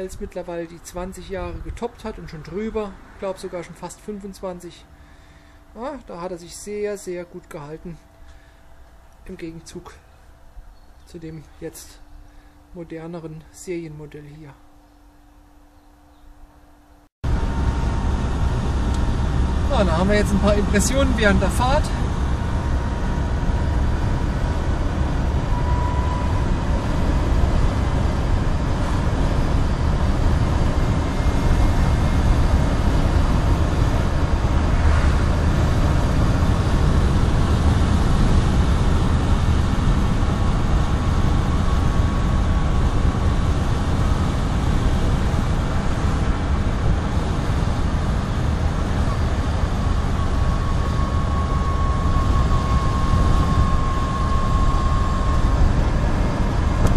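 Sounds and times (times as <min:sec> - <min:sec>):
wind and road rumble: 0:00.0 - 0:06.9, 0:17.2 - 0:56.9
electric motor whine: 0:17.2 - 0:56.9.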